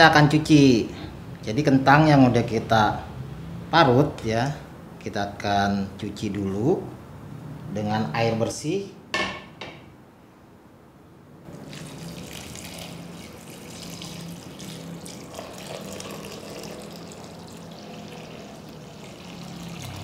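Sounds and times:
water pouring into bowl: 11.5 - 20.0.

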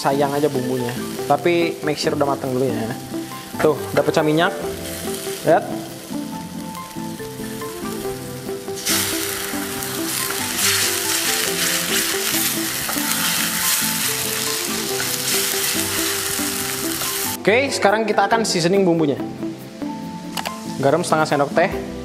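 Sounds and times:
paste sizzling in hot oil: 0.0 - 17.4.

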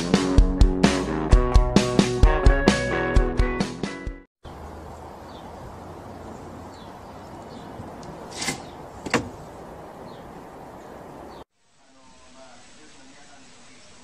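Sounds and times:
outdoor background hiss: 4.4 - 14.0.

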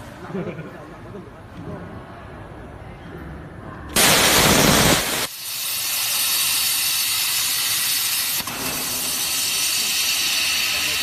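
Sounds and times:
plasma torch hissing: 4.0 - 11.0.

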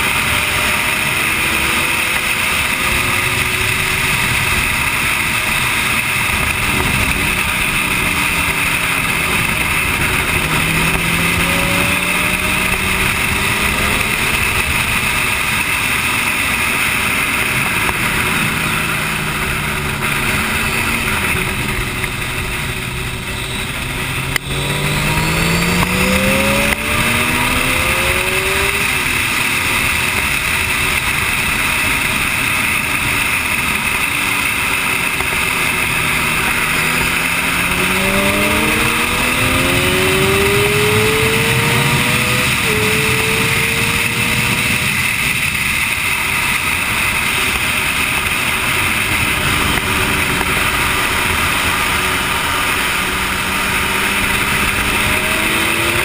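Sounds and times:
motorcycle engine at speed: 0.0 - 56.0.

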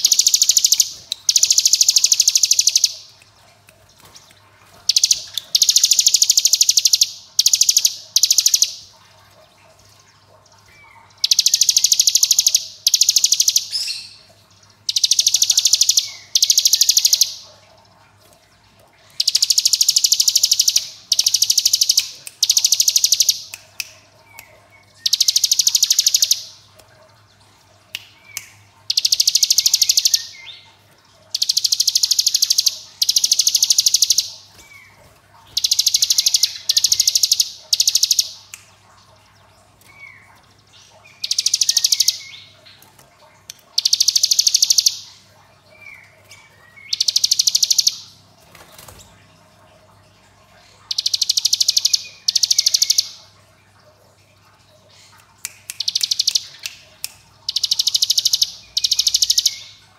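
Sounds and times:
bird fast buzzy rattling trill: 0.0 - 3.1, 4.8 - 8.9, 11.2 - 13.7, 14.9 - 17.4, 19.2 - 23.5, 25.0 - 26.5, 28.9 - 30.3, 31.3 - 34.6, 35.5 - 38.3, 43.8 - 45.1, 46.9 - 49.0, 57.5 - 59.6.

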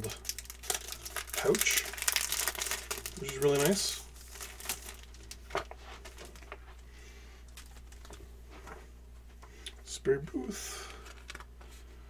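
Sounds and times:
plastic packaging rustling: 0.0 - 6.8, 7.4 - 8.8, 10.8 - 11.8.

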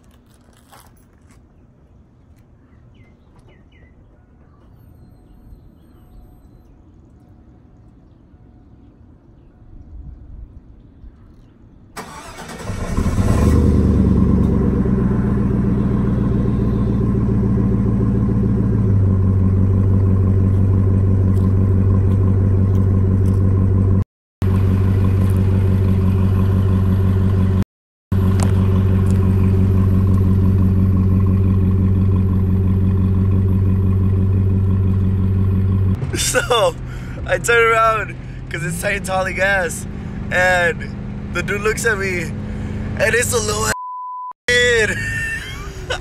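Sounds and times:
pickup truck engine starting and idling: 12.0 - 43.7.

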